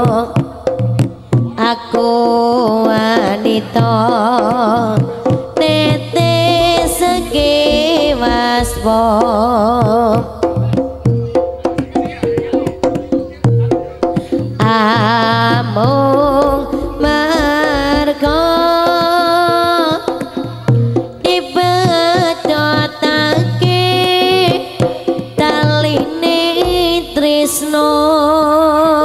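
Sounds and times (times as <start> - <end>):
hand drum strokes: 4.0 - 27.7
gamelan music: 5.3 - 18.6.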